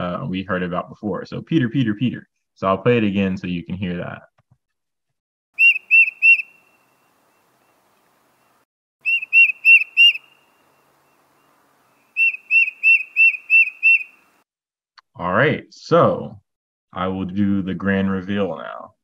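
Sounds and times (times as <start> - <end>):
bird singing whistled song: 5.6 - 7.7, 9.0 - 14.3.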